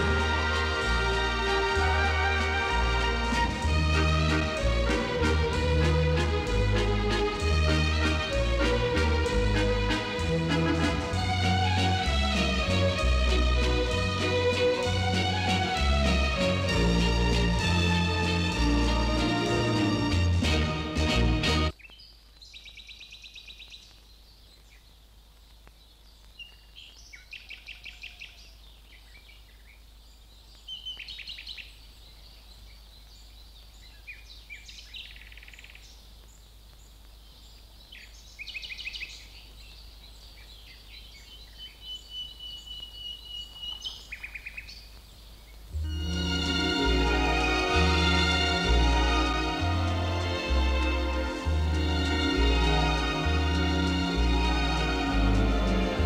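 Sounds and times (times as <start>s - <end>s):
music: 0.0s - 21.7s, 45.8s - 56.0s
songbirds singing: 21.7s - 45.8s.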